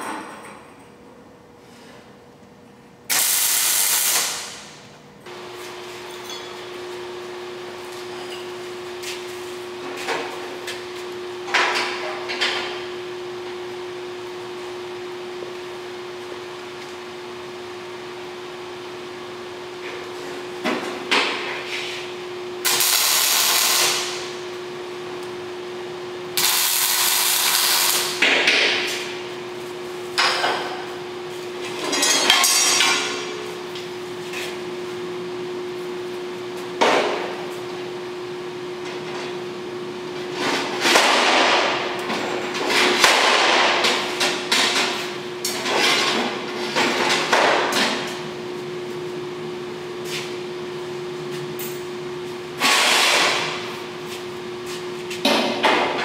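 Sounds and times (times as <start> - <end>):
arc welding crackling hiss: 3.1 - 4.8, 22.6 - 24.4, 26.4 - 28.2.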